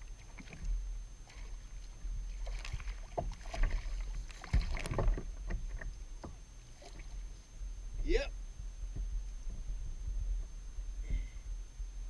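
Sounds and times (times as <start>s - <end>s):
water sloshing against hull: 0.0s - 12.0s
boat knocks and creaks: 2.4s - 7.3s.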